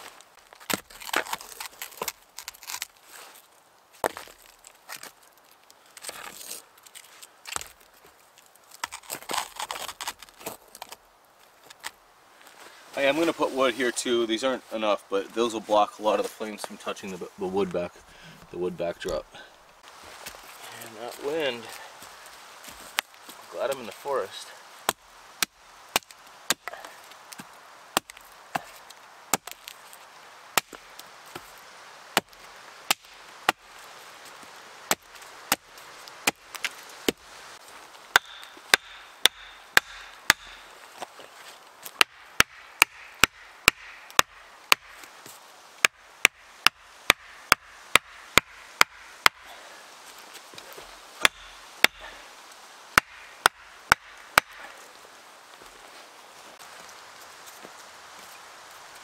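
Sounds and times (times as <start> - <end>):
axe chopping wood: 0.7 - 1.4, 24.9 - 27.0, 28.0 - 29.7, 30.6 - 30.9, 36.2 - 37.2, 38.1 - 40.7, 41.9 - 45.0, 45.8 - 49.5, 51.2 - 52.2, 52.9 - 54.8.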